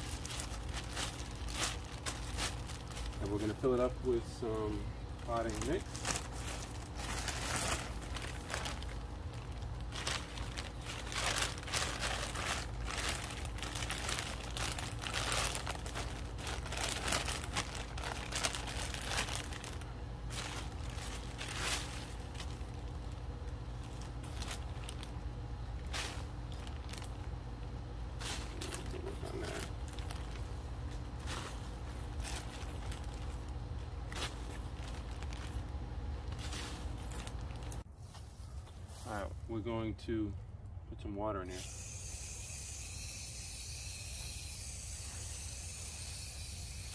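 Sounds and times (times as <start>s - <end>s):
plastic bags crinkling: 0.0s - 27.3s, 28.2s - 37.9s.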